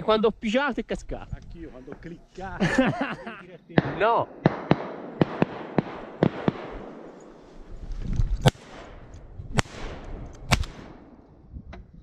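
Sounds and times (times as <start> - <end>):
shotgun shots with echo: 3.8 - 7.2, 8.4 - 11.2.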